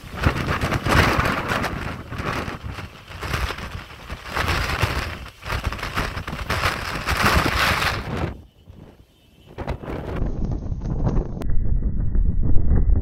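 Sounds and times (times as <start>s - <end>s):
heavy rain: 0.0s - 8.4s
wind buffeting microphone: 0.0s - 13.0s.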